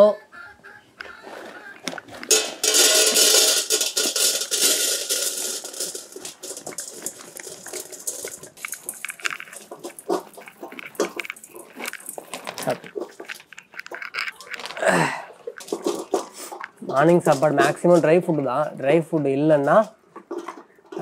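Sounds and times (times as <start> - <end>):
kibble pouring into metal bowl: 2.2 - 15.0.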